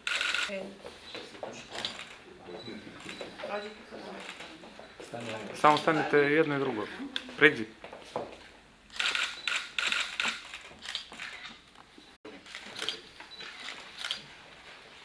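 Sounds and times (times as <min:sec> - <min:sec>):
camera shutters clicking: 0:00.0 - 0:00.5, 0:08.9 - 0:11.6, 0:12.5 - 0:14.3.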